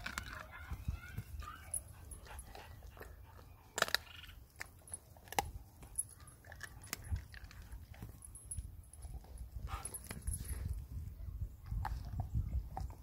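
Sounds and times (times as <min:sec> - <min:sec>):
dog gnawing on bone: 0:00.0 - 0:10.8.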